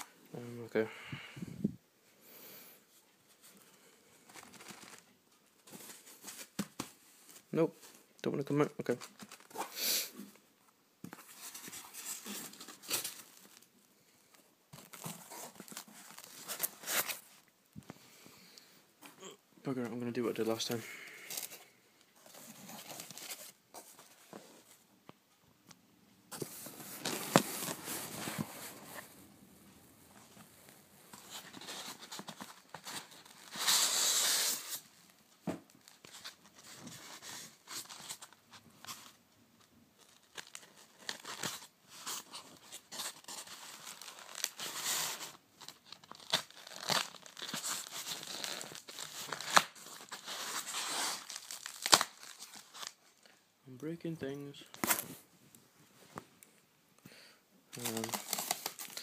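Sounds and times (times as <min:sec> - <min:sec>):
styrofoam crunching and tearing: 0:40.0 - 0:53.0, 0:57.8 - 0:59.0.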